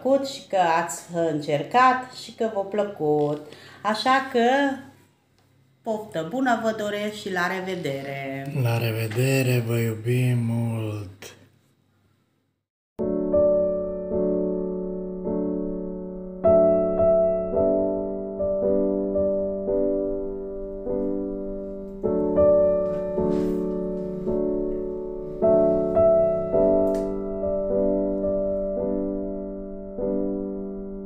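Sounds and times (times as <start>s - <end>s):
gentle piano chords: 13.0s - 31.0s.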